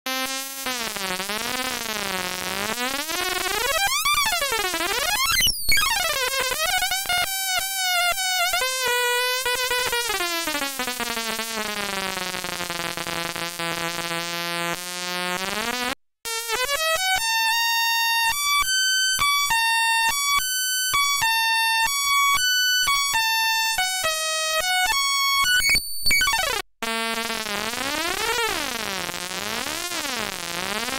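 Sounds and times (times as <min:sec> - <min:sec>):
square-wave synth buzzing: 0:00.1 - 0:17.2.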